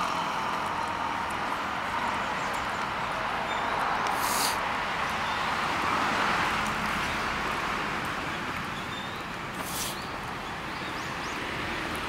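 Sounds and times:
distant traffic: 0.0s - 12.0s
brief high hiss: 4.1s - 4.6s, 9.6s - 10.1s.

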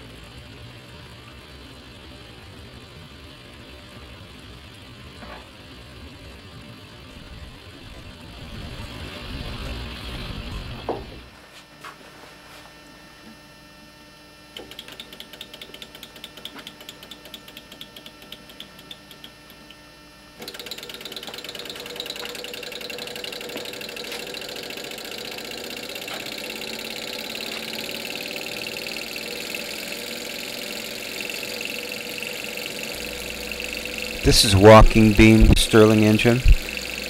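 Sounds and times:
engine mechanical ticking clatter: 14.6s - 19.6s, 20.4s - 37.0s
faint whine: 32.9s - 37.0s.

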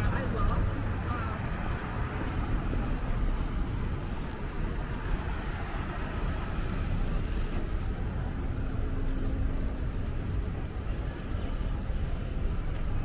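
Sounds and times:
cars driving past: 0.0s - 13.0s.

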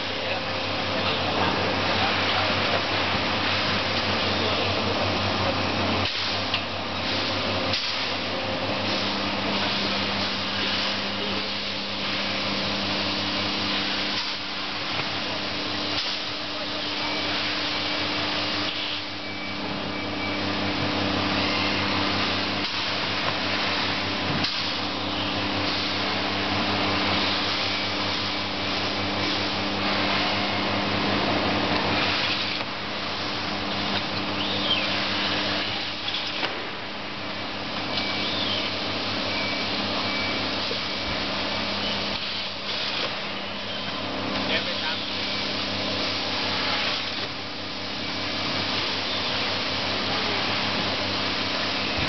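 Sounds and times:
vacuum pump humming: 0.0s - 52.0s
rushing air hiss: 1.2s - 19.2s, 44.5s - 52.0s.

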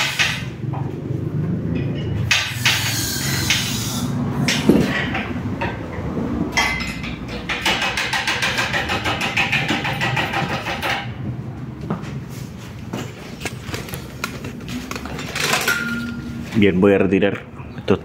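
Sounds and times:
metal clanks and clinks: 1.7s - 3.7s, 4.5s - 11.2s, 13.0s - 16.4s.

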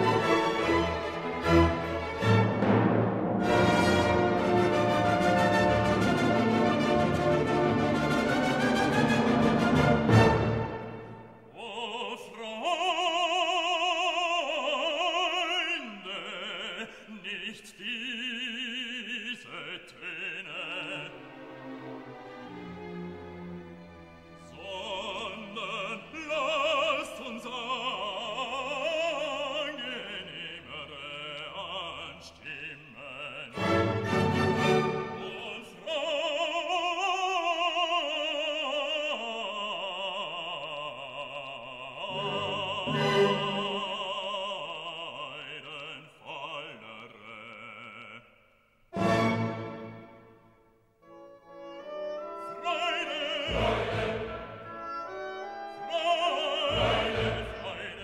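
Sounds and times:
operatic voice singing: 11.4s - 21.6s, 24.4s - 48.4s, 51.9s - 58.0s.

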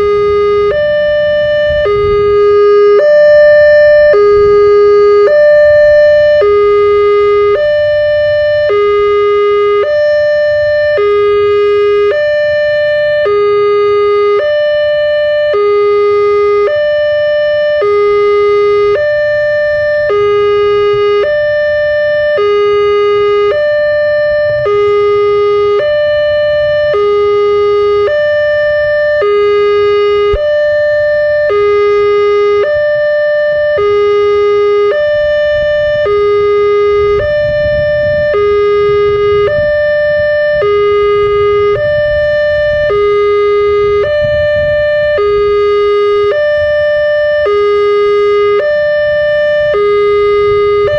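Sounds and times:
level crossing two-tone alarm: 0.0s - 50.9s.

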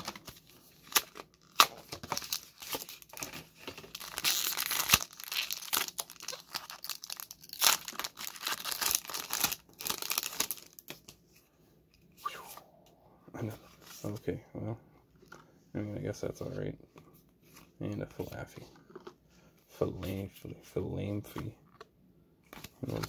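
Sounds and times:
foil wrapper tearing and crinkling: 0.8s - 11.0s.

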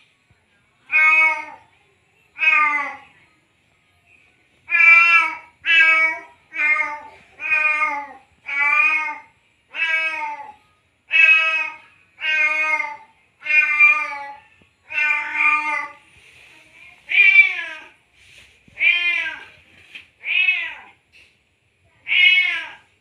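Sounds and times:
cat meowing: 0.9s - 1.6s, 4.7s - 16.0s, 18.8s - 19.6s, 20.2s - 21.0s, 22.0s - 22.9s.

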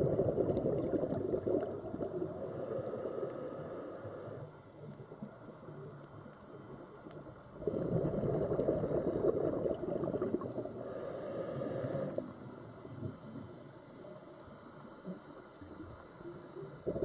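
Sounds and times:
regulator bubbling and gurgling: 0.0s - 2.7s, 7.5s - 10.9s, 16.8s - 17.0s
quiet underwater rustle: 0.0s - 17.0s.

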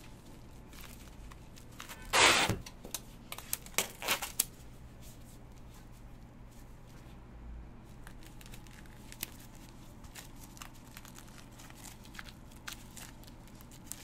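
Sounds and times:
plastic film crinkling and tapping: 0.0s - 2.0s, 2.6s - 4.6s, 7.9s - 14.0s
cling film ripping: 3.3s - 4.5s, 8.0s - 14.0s.

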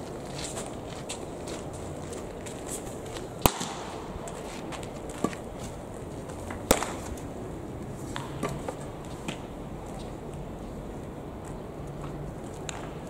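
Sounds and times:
baseball popping into glove: 6.6s - 7.2s.

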